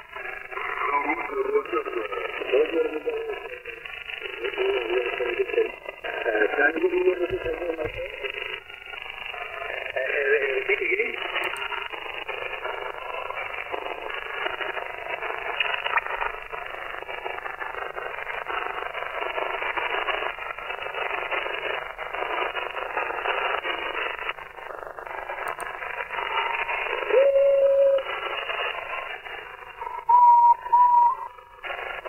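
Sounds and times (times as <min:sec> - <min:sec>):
faint garbled radio signals: 0:00.0 - 0:32.0
radio receiver hiss: 0:00.0 - 0:32.0
radio whistling tones: 0:00.1 - 0:32.0.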